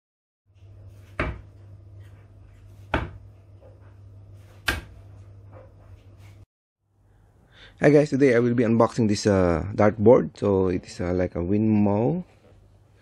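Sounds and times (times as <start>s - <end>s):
darts striking a bristle dartboard: 4.6s - 5.0s.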